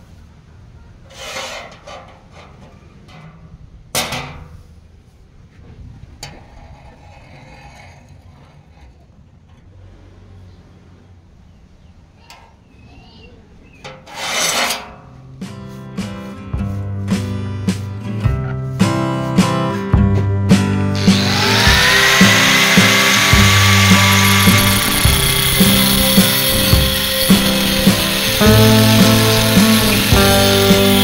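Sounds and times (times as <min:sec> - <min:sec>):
steel bar scraping on metal table: 0:01.1 - 0:02.8, 0:06.3 - 0:09.1, 0:13.9 - 0:15.0, 0:22.2 - 0:31.0
sharp metallic clank: 0:21.5 - 0:31.0.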